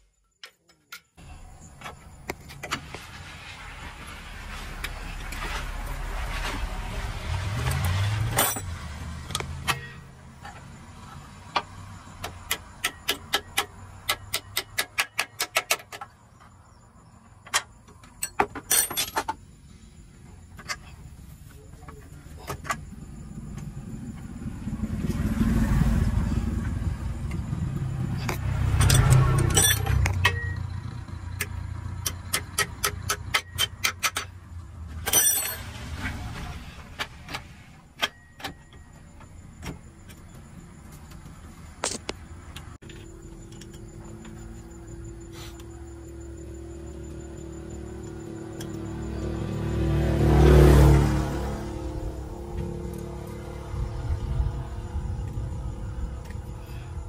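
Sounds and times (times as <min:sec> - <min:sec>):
hand tools clicking and clinking: 0:17.5 - 0:19.4, 0:28.2 - 0:30.6, 0:31.4 - 0:34.3, 0:35.0 - 0:35.8
low engine rumble: 0:19.4 - 0:57.0.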